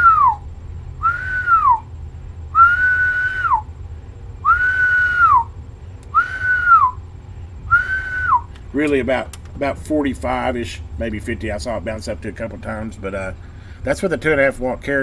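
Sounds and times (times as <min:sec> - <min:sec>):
man whistling short notes: 0:00.0 - 0:00.4, 0:01.0 - 0:01.9, 0:02.6 - 0:03.7, 0:04.4 - 0:07.0, 0:07.7 - 0:08.5.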